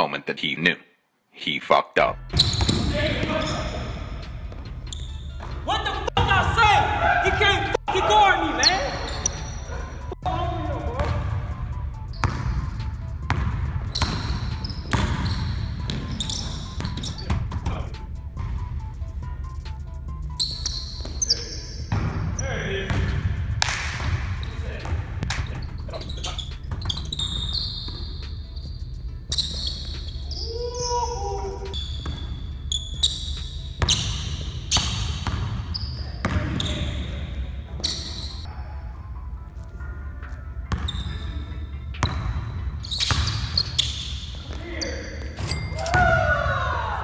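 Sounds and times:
basketball bouncing on wooden floor: 0:02.3 - 0:03.6, 0:13.3 - 0:17.8, 0:31.8 - 0:32.4, 0:33.8 - 0:35.6
sneaker squeaks: 0:02.3 - 0:05.8, 0:08.6 - 0:10.1, 0:12.0 - 0:18.0, 0:20.2 - 0:23.3, 0:24.0 - 0:38.5, 0:40.2 - 0:46.5.

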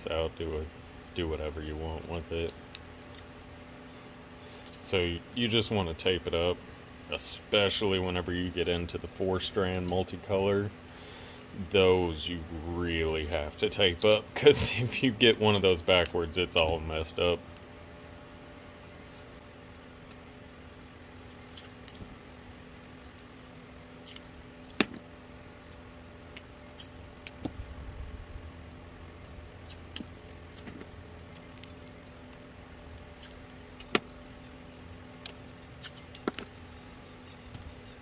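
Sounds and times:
steady low hum: 0:00.0 - 0:38.0
hands handling tape and plastic: 0:21.2 - 0:27.7, 0:28.4 - 0:36.5.

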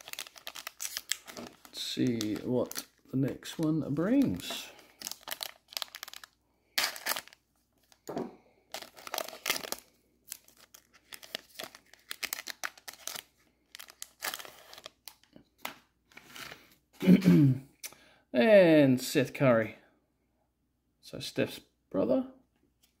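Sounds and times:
foil wrapper tearing and crinkling: 0:00.0 - 0:02.9, 0:03.6 - 0:08.0, 0:08.8 - 0:15.3.

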